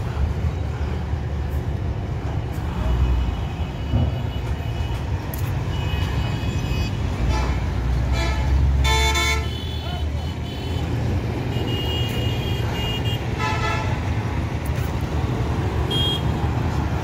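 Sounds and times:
bus engine rumbling: 0.0s - 17.0s
vehicle horn toots: 8.2s - 9.8s, 15.9s - 16.3s.

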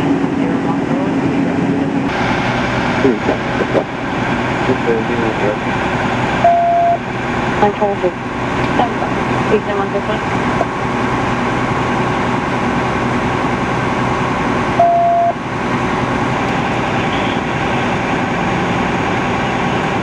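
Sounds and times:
vehicle engines idling: 0.0s - 20.0s
short electronic beep: 6.4s - 7.0s, 14.8s - 15.4s.

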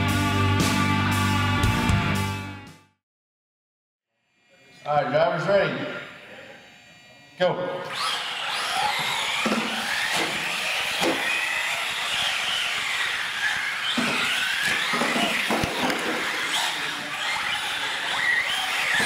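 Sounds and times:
electric motors whining: 4.2s - 19.0s
toy trucks knocking and bumping: 8.7s - 19.0s.

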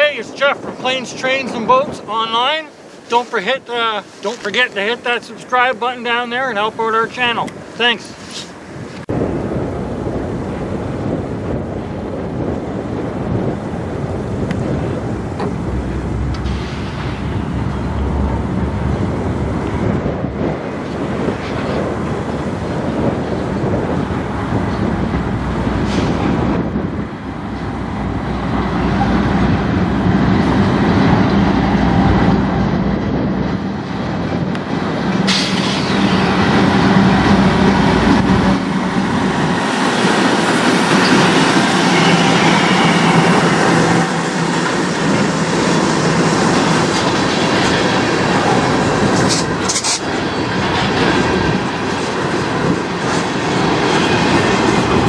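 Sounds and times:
locomotive engines humming: 4.0s - 55.0s
sharp clank: 15.4s - 18.4s, 35.2s - 36.3s
wheels on rails: 34.1s - 55.0s.

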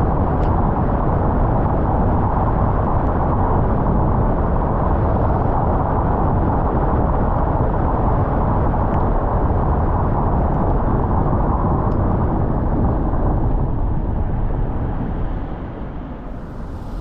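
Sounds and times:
car road noise: 13.6s - 17.0s.

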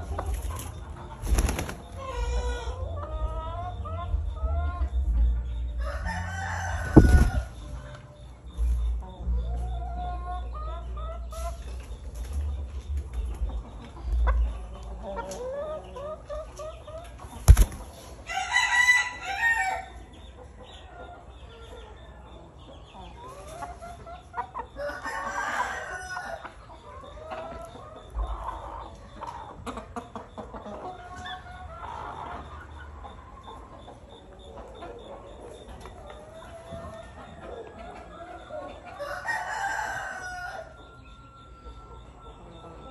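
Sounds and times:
chickens clucking: 0.0s - 42.9s
rooster crowing: 5.8s - 7.5s, 18.3s - 20.0s, 39.0s - 40.8s.

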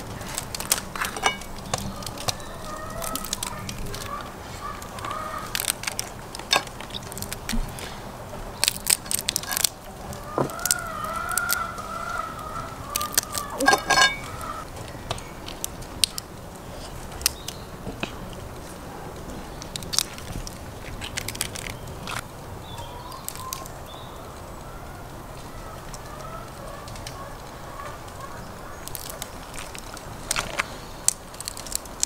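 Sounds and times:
crayfish shells cracking: 0.0s - 18.5s, 19.5s - 24.0s, 28.1s - 32.0s
rooster crowing: 1.8s - 5.6s, 10.1s - 14.7s.

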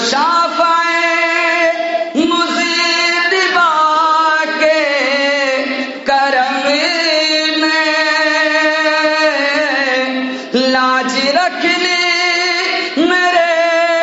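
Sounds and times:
man singing melismatic notes: 0.0s - 14.0s
breath: 10.2s - 10.6s.

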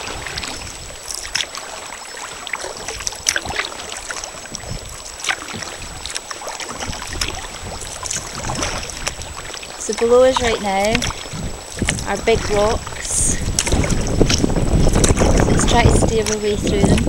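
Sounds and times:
paddle splashes: 0.0s - 17.0s
water lapping against kayak hull: 0.0s - 17.0s
wind rumble on microphone: 0.0s - 17.0s.

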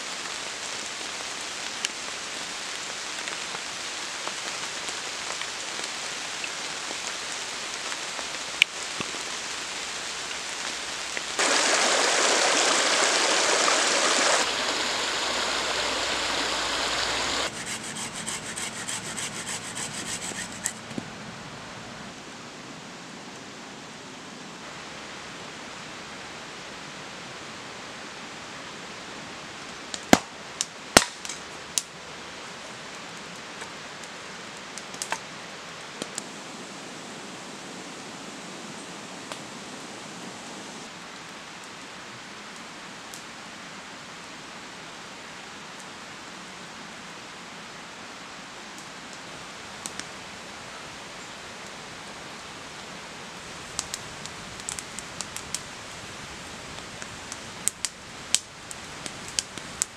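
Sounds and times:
campfire hissing and popping: 0.0s - 21.1s, 29.7s - 43.3s, 48.8s - 50.6s, 51.2s - 59.9s.

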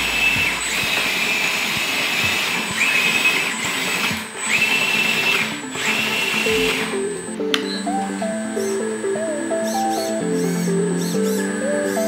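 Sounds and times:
hydraulic pump whining: 0.0s - 7.6s.

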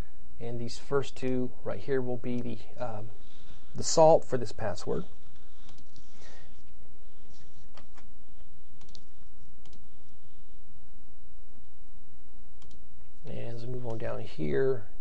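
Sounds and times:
steady low hum: 0.0s - 15.0s
computer keys clicking: 5.6s - 6.0s, 8.8s - 9.9s, 12.6s - 12.8s.

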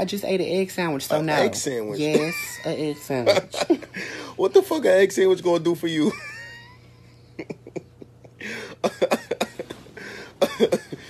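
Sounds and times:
person coughing: 8.5s - 11.0s.

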